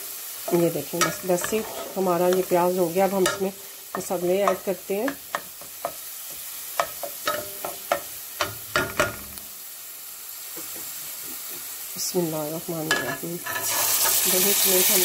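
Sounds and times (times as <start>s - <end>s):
onions sizzling in oil: 0.0s - 15.0s
wooden spatula scraping pan: 1.0s - 2.6s, 13.0s - 14.2s.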